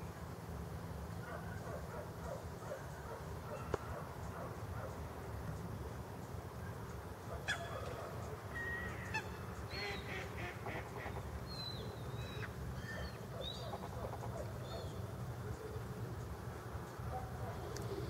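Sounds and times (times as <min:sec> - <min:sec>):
waterfowl calling: 0:08.5 - 0:14.9.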